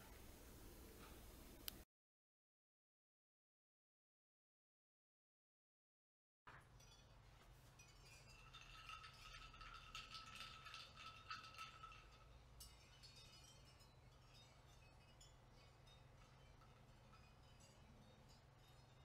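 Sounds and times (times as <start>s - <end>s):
faint high tinkling: 6.5s - 19.0s.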